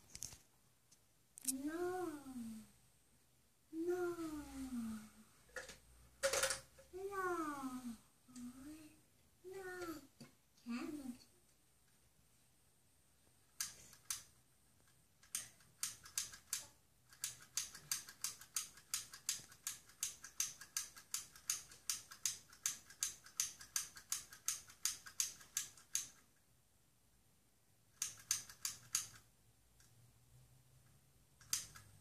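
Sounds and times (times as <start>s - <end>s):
plastic toy clicking: 5.5s - 6.6s, 13.6s - 14.3s, 15.2s - 26.3s, 28.0s - 29.9s, 31.4s - 32.0s.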